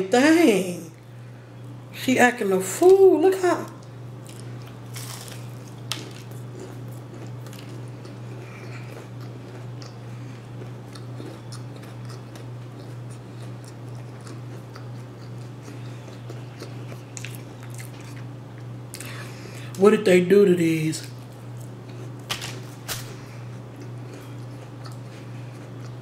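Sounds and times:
steady low hum: 0.0s - 26.0s
person chewing crunchy food: 4.2s - 19.8s, 21.0s - 26.0s.

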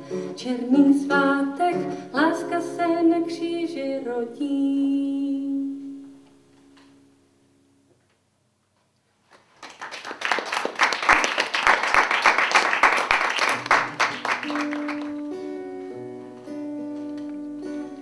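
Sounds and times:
audience applause: 9.3s - 15.3s
acoustic guitar notes: 13.6s - 18.0s.

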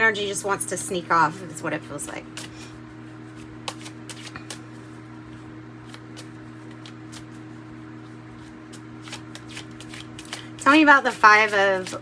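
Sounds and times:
steady low hum: 0.0s - 12.0s
cards being shuffled: 3.2s - 12.0s.

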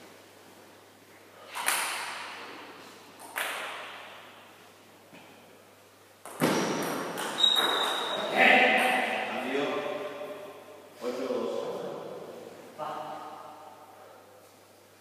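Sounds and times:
sharp knocks echoing in hall: 1.5s - 4.6s, 6.2s - 14.2s.

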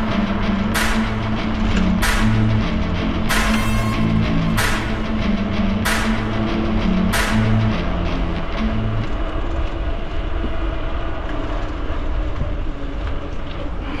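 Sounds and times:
background music with cymbal and bass: 0.0s - 9.1s
wind and tyre rumble: 7.6s - 14.0s.

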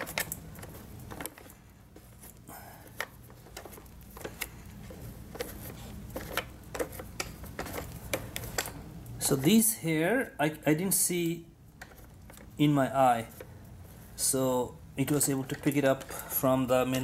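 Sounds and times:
clicks and scratches on plastic brush: 0.0s - 8.7s, 13.2s - 14.0s, 15.0s - 17.0s.

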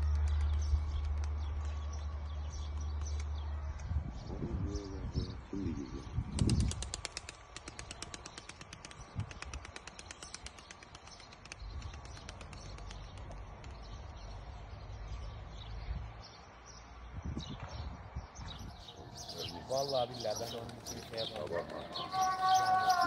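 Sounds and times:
pigeon wing flaps: 6.4s - 13.3s.

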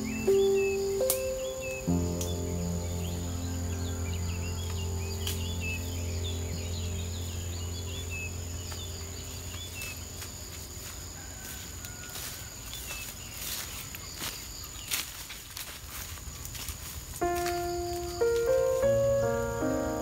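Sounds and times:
low music chord: 0.0s - 10.5s, 17.2s - 20.0s
high insect trill: 0.0s - 20.0s
small birds chirping: 0.0s - 20.0s.

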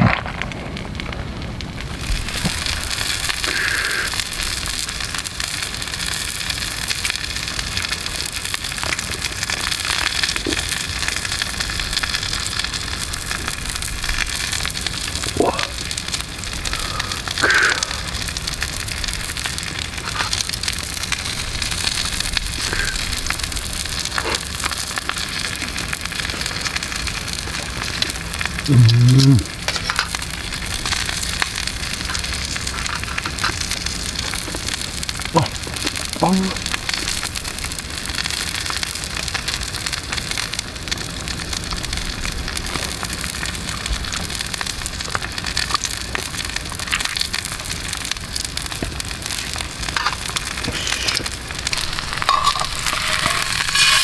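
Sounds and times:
campfire crackling: 0.0s - 54.0s
steak sizzling in a skillet: 1.4s - 28.7s, 29.5s - 54.0s
man's low voice: 15.3s - 15.8s, 28.6s - 29.6s, 35.3s - 36.7s.

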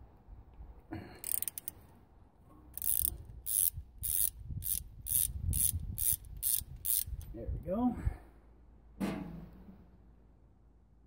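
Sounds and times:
ratchet wrench clicking: 1.2s - 1.8s, 2.8s - 7.3s.

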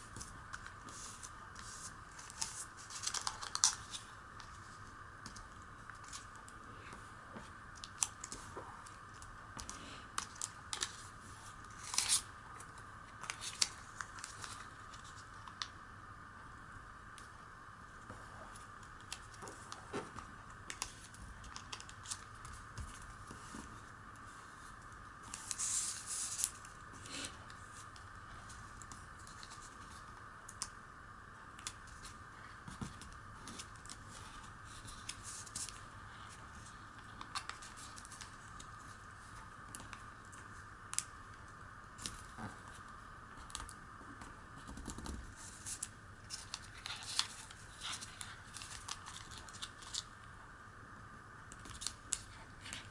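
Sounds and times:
paper rustling and crackling: 0.1s - 4.8s, 31.6s - 38.8s, 44.6s - 50.1s.

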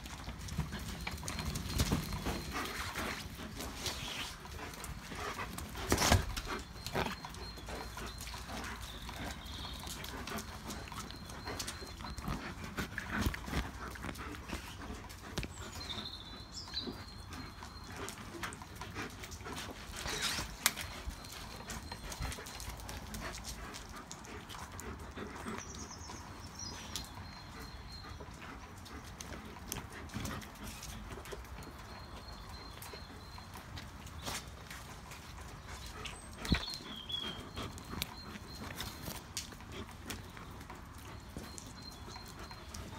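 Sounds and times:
paws scrabbling on concrete: 0.0s - 42.9s
chewed toy rustling: 0.1s - 15.8s.

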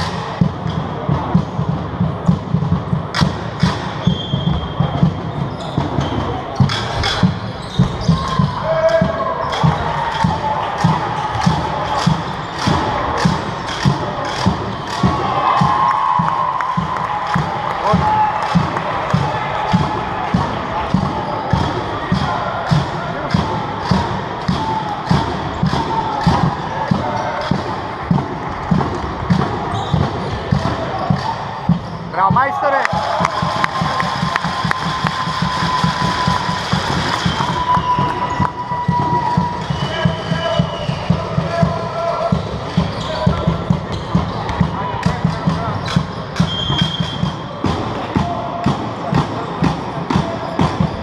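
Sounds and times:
short high whistle: 4.0s - 4.8s, 37.1s - 41.2s, 46.4s - 47.4s.

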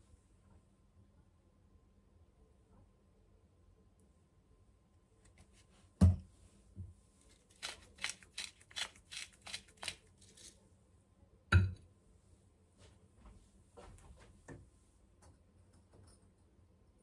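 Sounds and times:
spice mill grinding: 7.3s - 10.6s.

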